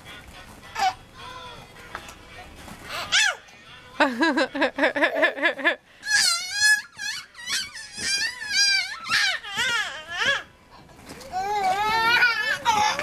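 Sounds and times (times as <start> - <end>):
children giggling: 4.0 - 5.8.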